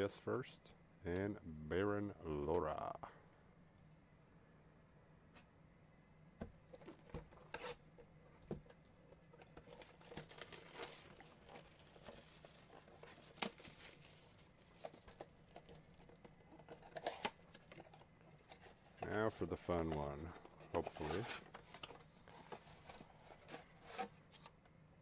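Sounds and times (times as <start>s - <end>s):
plastic shrink wrap tearing: 9.6s - 16.0s.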